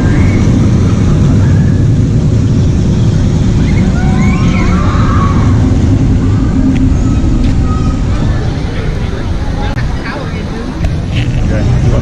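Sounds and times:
short rising squeals: 0.0s - 9.3s
roller coaster rumbling: 0.0s - 12.0s.

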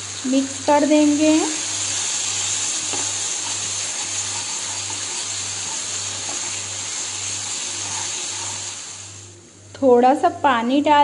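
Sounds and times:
masala sizzling in a pan: 0.0s - 9.4s
spatula stirring: 1.7s - 9.1s.

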